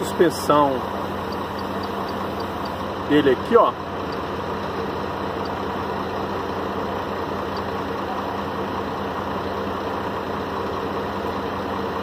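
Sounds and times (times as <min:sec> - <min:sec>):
diesel truck engine idling: 0:00.0 - 0:12.0.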